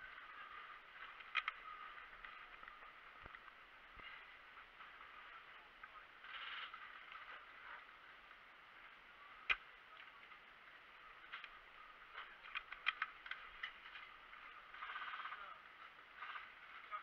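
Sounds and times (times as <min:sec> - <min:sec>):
airsoft gun clicks: 0:01.2 - 0:01.6, 0:12.4 - 0:13.8.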